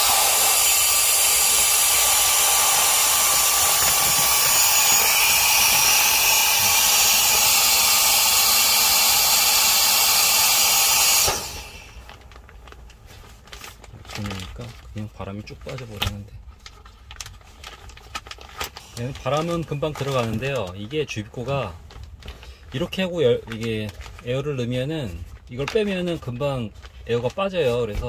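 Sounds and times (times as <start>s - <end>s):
mini blower rushing air: 0.0s - 12.2s.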